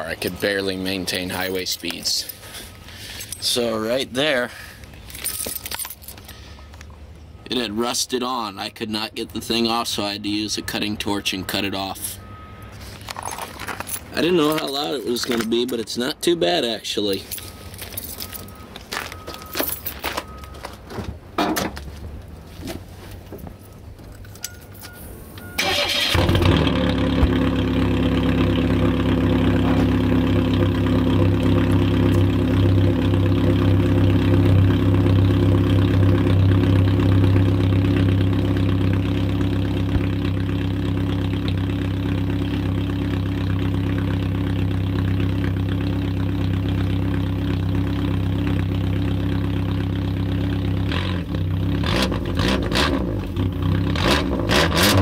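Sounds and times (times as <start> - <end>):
car engine starting and idling: 23.6 - 55.0
engine revving: 25.6 - 44.1, 45.4 - 55.0.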